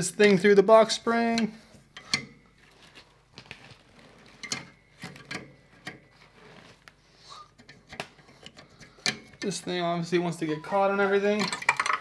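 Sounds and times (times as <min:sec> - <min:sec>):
rustling: 0:02.5 - 0:09.4.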